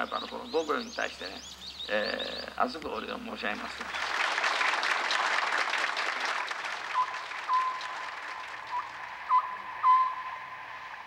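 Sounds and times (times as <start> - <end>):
audience applauding: 3.8 - 9.7
short whistle-like notes: 6.9 - 10.6.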